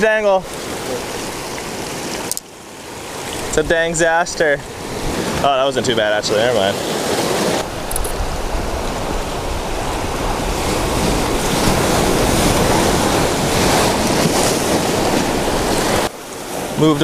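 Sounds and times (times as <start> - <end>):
surf washing over rocks: 0.0 - 17.0
wind buffeting microphone: 2.9 - 6.5, 7.1 - 17.0.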